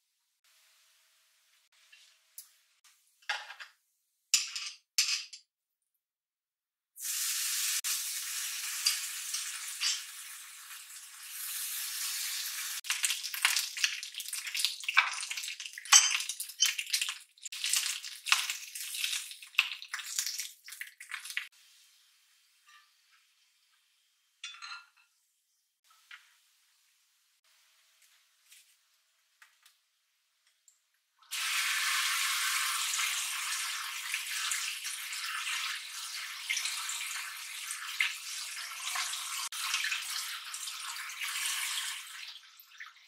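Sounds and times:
bacon sizzling and popping: 7.0 - 24.0, 31.3 - 42.9.

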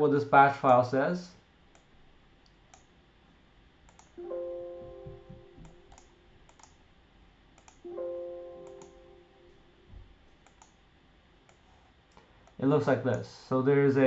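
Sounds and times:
light mouse clicks: 1.7 - 2.9, 3.9 - 4.2, 5.6 - 6.8, 7.6 - 7.9, 8.6 - 9.0, 10.4 - 10.8
computer alert chimes: 4.2 - 6.0.

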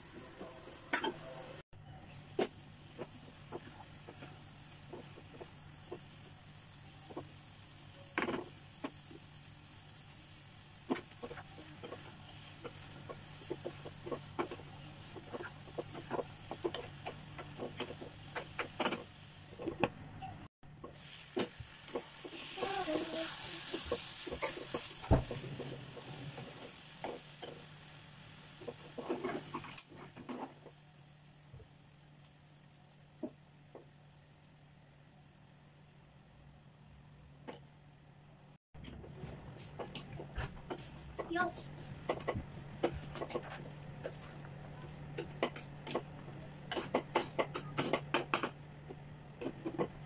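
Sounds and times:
wooden spatula scraping a pan: 10.8 - 19.8, 21.0 - 27.6, 28.6 - 30.7, 38.8 - 48.2.

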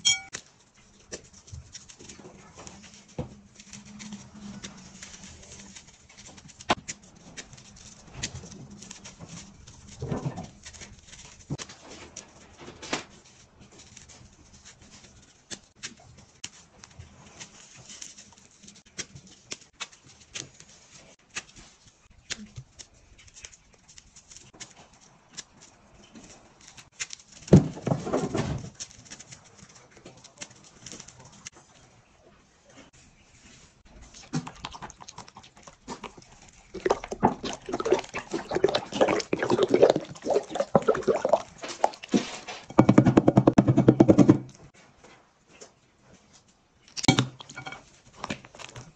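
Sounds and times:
dry food cracking and crunching: 34.1 - 42.4, 46.8 - 48.9.

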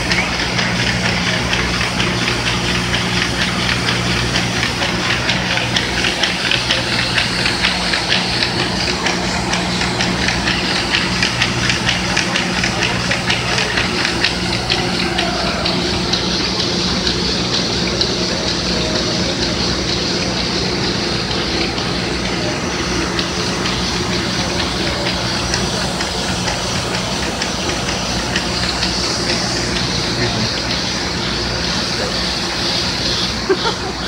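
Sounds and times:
machine hum: 0.0 - 34.0
rapid machine ticking: 0.0 - 34.0.

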